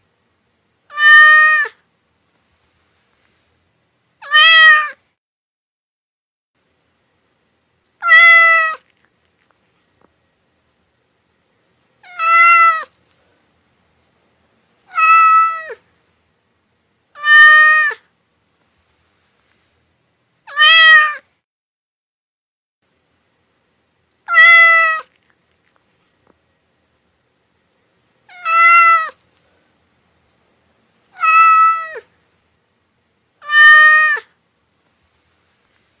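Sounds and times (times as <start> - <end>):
cat meowing: 0.9 - 1.8, 4.2 - 5.0, 8.0 - 8.9, 12.0 - 13.0, 14.9 - 15.8, 17.2 - 18.0, 20.5 - 21.2, 24.3 - 25.2, 28.3 - 29.2, 31.1 - 32.1, 33.4 - 34.3.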